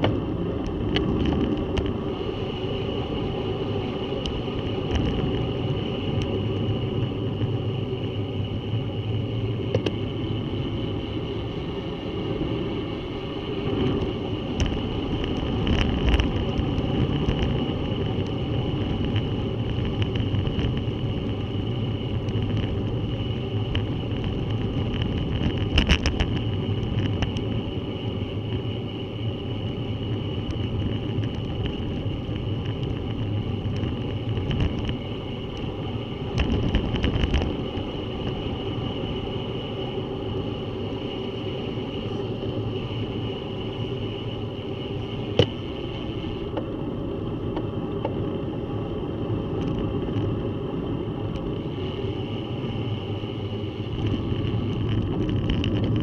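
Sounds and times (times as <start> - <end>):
bicycle rattling over bumps: 0.0 - 2.0, 13.7 - 29.0, 29.6 - 39.0, 53.8 - 56.0
bicycle tyres rumbling on road: 0.0 - 56.0.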